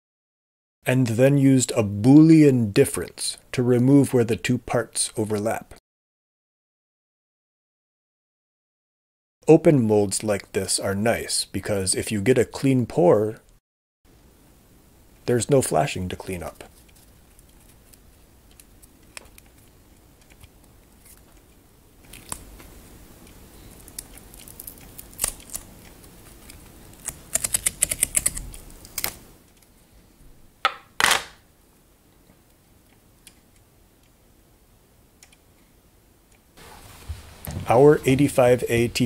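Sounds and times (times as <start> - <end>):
rubbery handling noises: 36.6 - 39.0.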